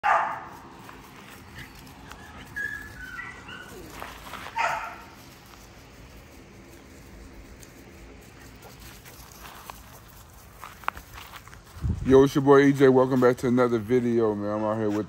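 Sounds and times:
puppy barking: 0:00.0 - 0:00.5, 0:02.6 - 0:05.1.

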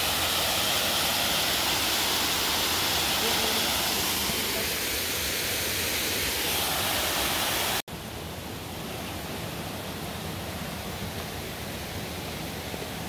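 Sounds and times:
waterfall and stream rushing: 0:00.0 - 0:13.0.

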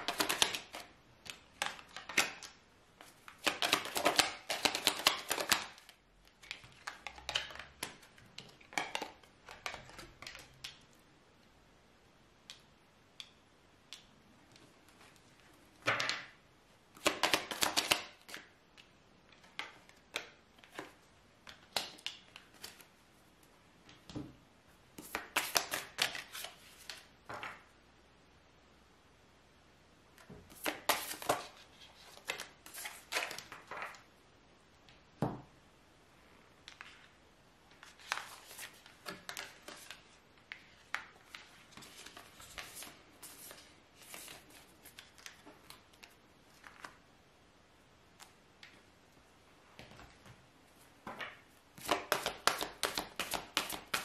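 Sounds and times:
cards being shuffled: 0:00.0 - 0:02.4, 0:03.0 - 0:10.8, 0:17.0 - 0:18.4, 0:19.4 - 0:22.9, 0:25.0 - 0:27.1, 0:30.5 - 0:34.0, 0:37.7 - 0:47.0, 0:51.1 - 0:54.0.

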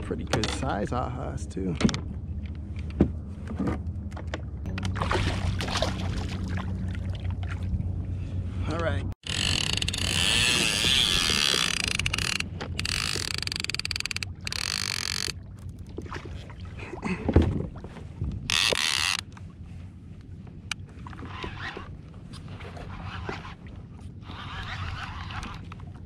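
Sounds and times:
fishing reel ratcheting: 0:09.2 - 0:15.4, 0:18.5 - 0:19.2.

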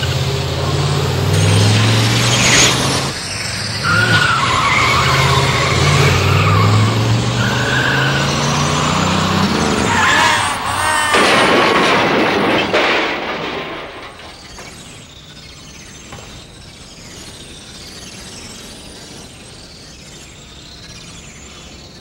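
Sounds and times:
car engine running: 0:00.0 - 0:10.2
tyres squealing and skidding: 0:00.0 - 0:22.0.

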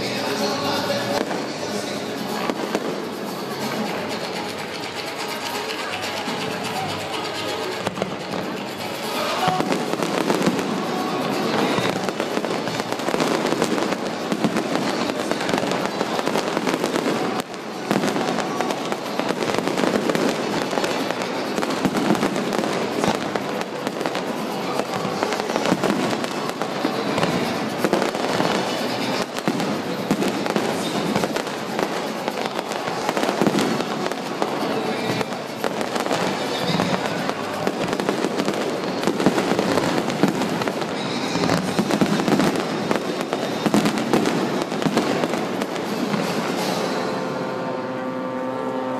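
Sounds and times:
fireworks bursting and crackling: 0:00.0 - 0:48.9.

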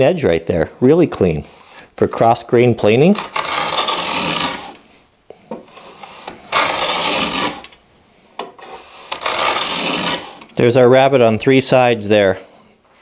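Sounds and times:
hand plane cutting wood: 0:03.1 - 0:04.9, 0:05.6 - 0:07.8, 0:08.6 - 0:10.6.

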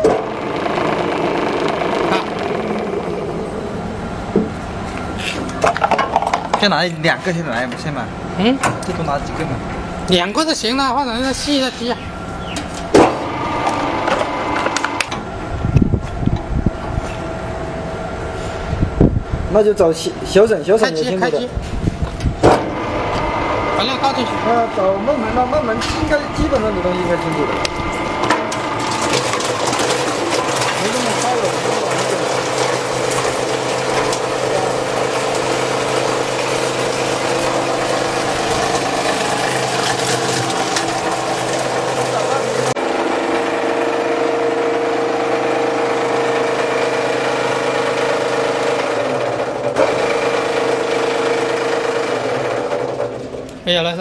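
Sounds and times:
plastic crusher humming: 0:00.0 - 0:18.8, 0:22.3 - 0:53.8
loud knock: 0:22.4 - 0:22.8
plastic crushing clatter: 0:28.2 - 0:42.7.

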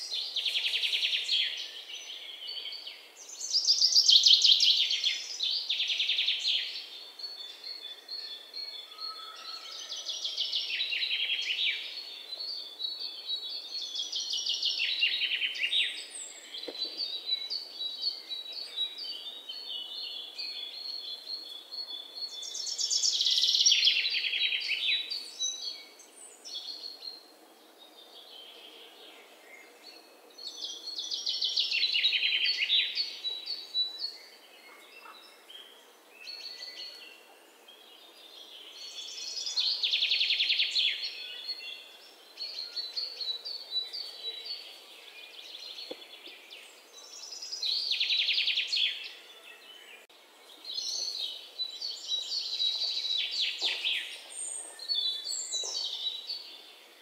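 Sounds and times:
soft bird chirps: 0:28.1 - 0:57.0.

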